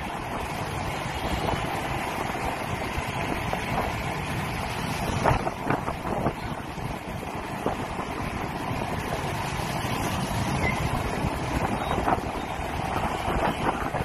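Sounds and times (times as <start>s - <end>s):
road and traffic noise: 0.0s - 14.0s
wind rushing over microphone: 0.0s - 14.0s.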